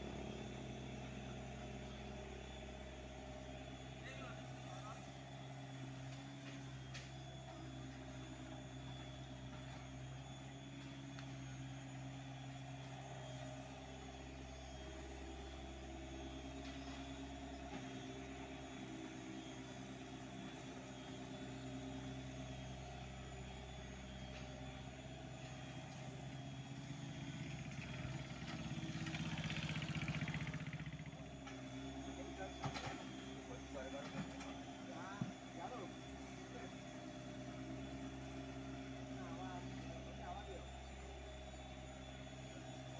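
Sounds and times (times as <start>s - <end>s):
excavator diesel engine running: 0.0s - 11.6s, 25.3s - 42.9s.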